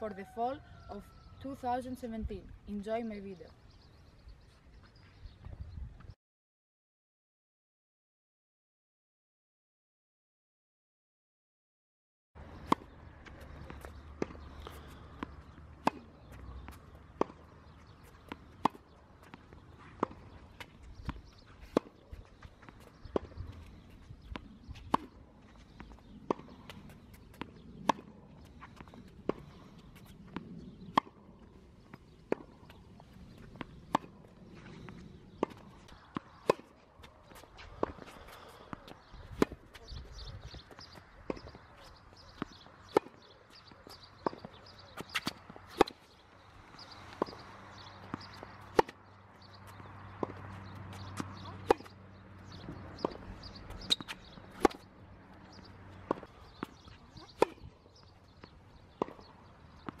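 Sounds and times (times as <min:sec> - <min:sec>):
tennis ball struck by rackets: 0:12.6 - 0:25.2, 0:25.8 - 0:28.1, 0:31.9 - 0:34.3, 0:35.3 - 0:46.2, 0:46.8 - 1:00.0
ball bouncing on hard court: 0:52.6 - 0:54.9.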